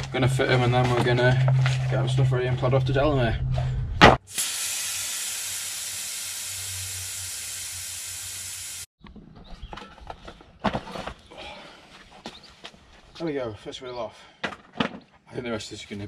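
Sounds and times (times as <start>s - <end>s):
air hissing out of tyre: 4.2s - 8.9s.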